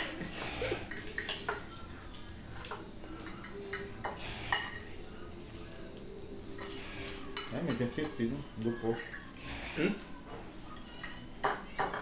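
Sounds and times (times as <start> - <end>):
cutlery clinking on ceramic plates: 0.0 - 5.8, 6.6 - 12.0.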